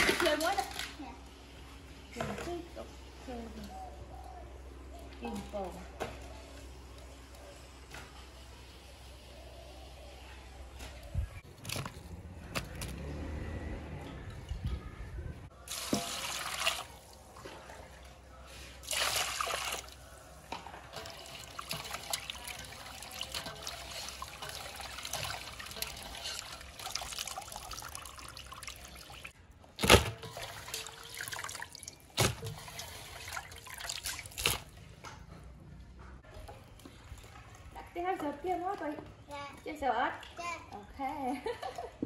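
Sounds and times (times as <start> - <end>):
water splashing in steel bowl: 15.6 - 18.0, 18.8 - 20.1, 20.9 - 34.8.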